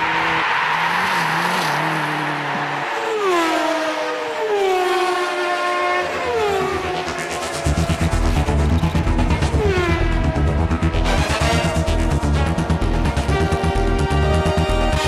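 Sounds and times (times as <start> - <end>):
rally car engine running hard: 6.1 - 15.0.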